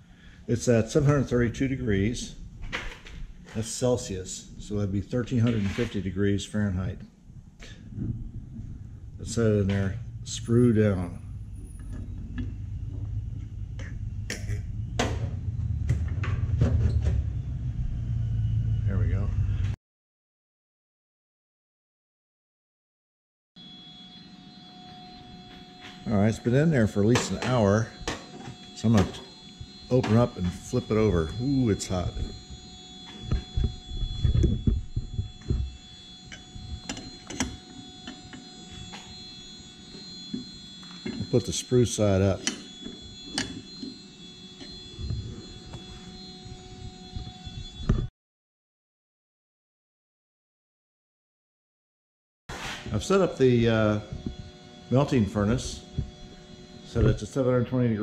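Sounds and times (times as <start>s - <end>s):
low hum: 0.0s - 19.8s, 23.6s - 48.1s.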